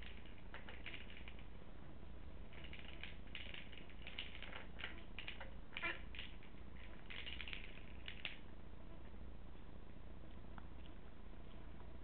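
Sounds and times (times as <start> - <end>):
treat ball rattling: 0.0 - 1.7, 2.4 - 8.5.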